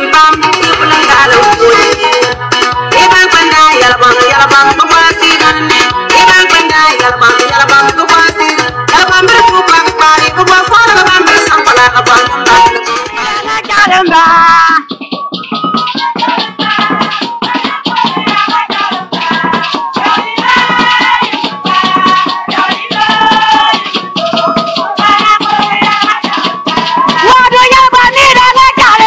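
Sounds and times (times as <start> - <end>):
shaken rattles: 14.8 - 29.0.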